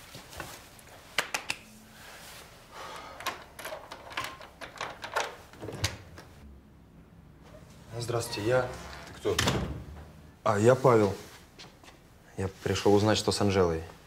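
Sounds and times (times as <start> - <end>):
door lock and handle clicking: 3.2 - 6.0.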